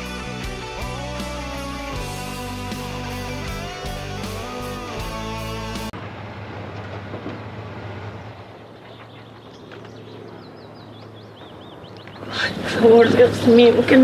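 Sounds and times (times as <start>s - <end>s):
outdoor rumble: 0.7s - 14.0s
small birds chirping: 8.3s - 14.0s.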